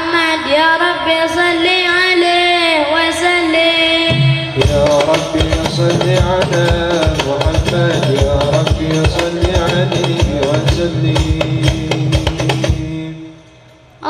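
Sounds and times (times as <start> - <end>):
hand drums: 4.1 - 13.1
deep bass drum: 4.1 - 13.2.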